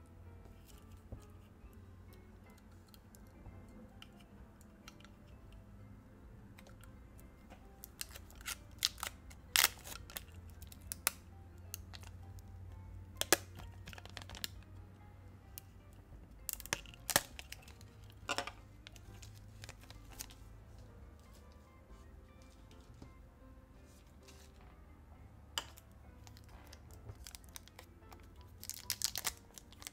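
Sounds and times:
soft background music: 0.0 - 29.9
plastic film crinkling: 7.8 - 11.2, 13.2 - 14.6, 16.5 - 20.4, 26.2 - 29.9.

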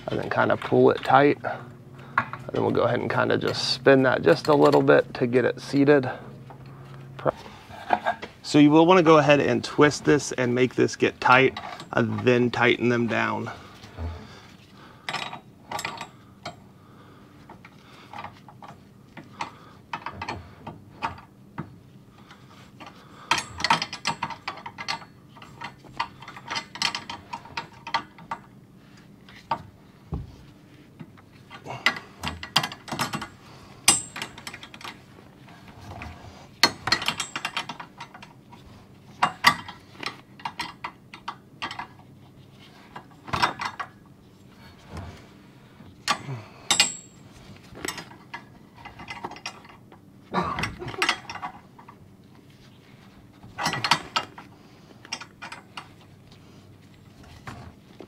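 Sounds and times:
metallic clicks and clanks: 22.8 - 28.5, 31.5 - 35.0, 35.9 - 38.4, 46.0 - 47.2, 53.5 - 55.9.

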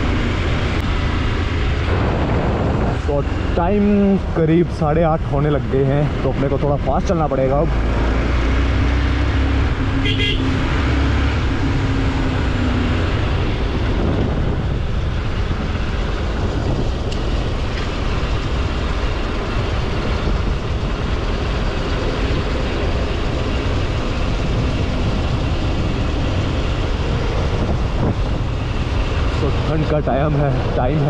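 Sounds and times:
wind buffeting microphone: 0.0 - 6.9, 8.4 - 31.0
motorcycle engine running: 9.3 - 29.8.

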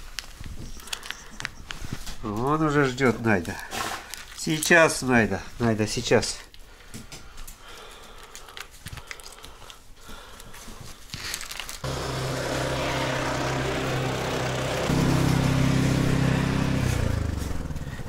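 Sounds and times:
plastic pouch crinkling: 0.0 - 1.8, 4.1 - 5.0, 8.1 - 11.9
steady engine hum: 11.8 - 18.0.

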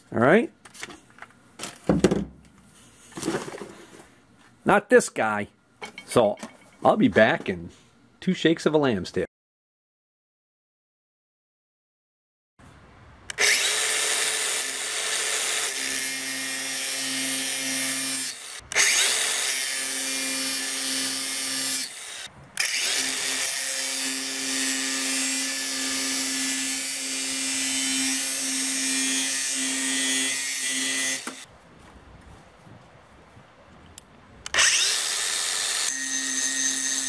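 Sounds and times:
angle grinder running: 13.3 - 31.5, 34.5 - 37.0.

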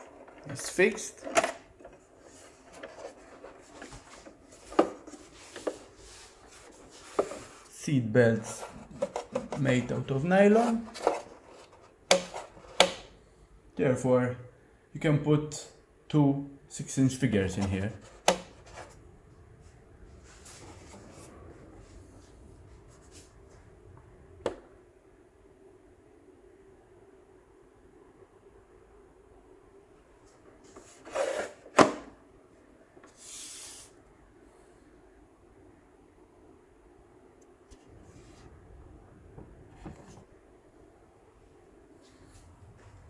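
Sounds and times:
toy model handling scraping: 0.0 - 7.7, 8.4 - 12.8, 30.8 - 31.7.

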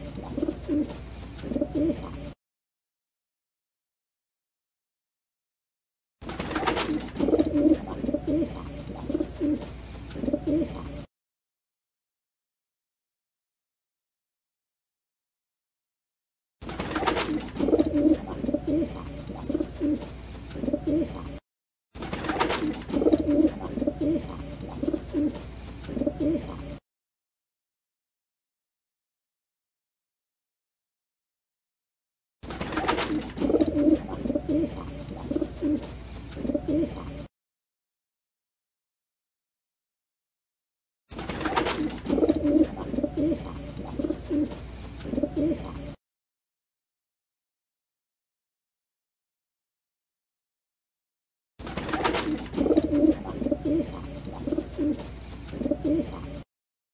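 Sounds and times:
pigeon cooing: 0.0 - 2.4, 6.6 - 11.1, 16.9 - 21.4, 22.2 - 26.8, 32.7 - 37.3, 41.4 - 46.0, 51.9 - 56.4.

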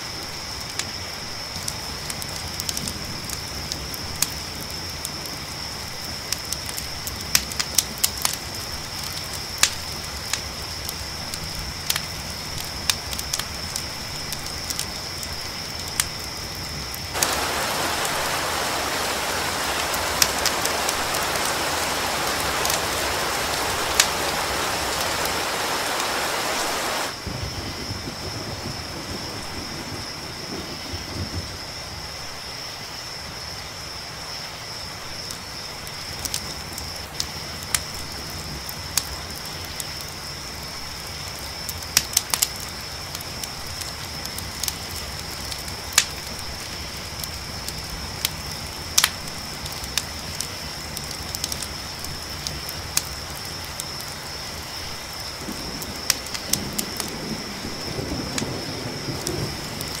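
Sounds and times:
crickets chirping: 0.0 - 60.0
campfire crackling and popping: 0.6 - 27.3, 36.1 - 40.2, 41.0 - 60.0.

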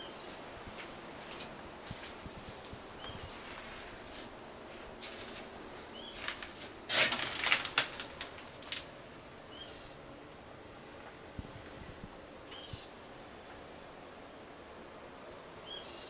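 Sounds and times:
rapid rustling and clicking: 6.2 - 8.9.

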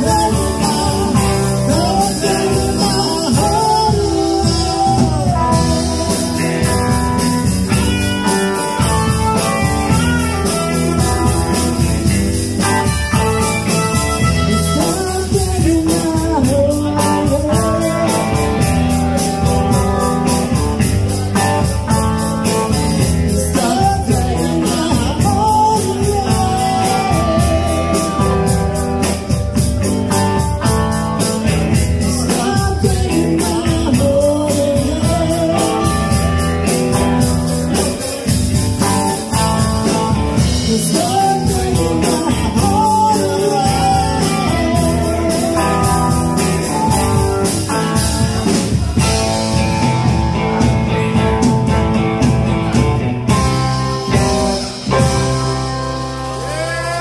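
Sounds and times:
woman singing lead: 0.0 - 7.2, 23.3 - 29.1
bass guitar: 0.0 - 57.0
drum kit steady beat: 0.0 - 57.0
electric guitars: 0.0 - 57.0.

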